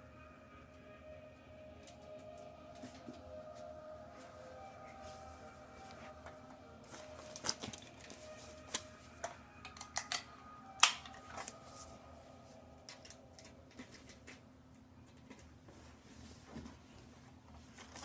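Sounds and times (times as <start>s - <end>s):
plastic tape crackling: 6.8s - 11.8s.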